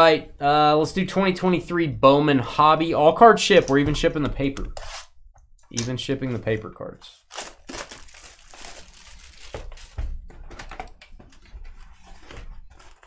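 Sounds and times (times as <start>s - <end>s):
plastic wrapping crinkling and tearing: 7.2s - 10.1s, 11.3s - 13.0s.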